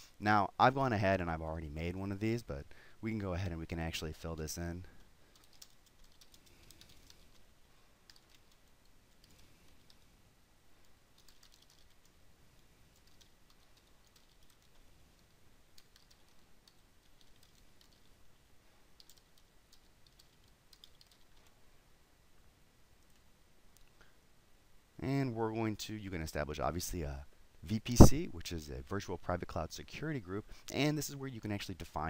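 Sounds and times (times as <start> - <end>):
faint keyboard typing: 4.2 - 21.6, 23.0 - 24.1.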